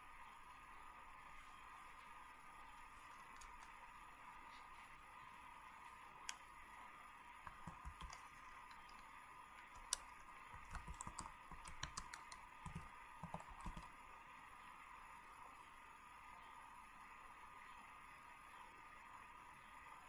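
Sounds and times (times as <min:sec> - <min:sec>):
faint hum: 0:00.0 - 0:20.0
low hiss: 0:00.0 - 0:20.0
faint clicks and taps: 0:02.7 - 0:03.8, 0:07.4 - 0:13.9.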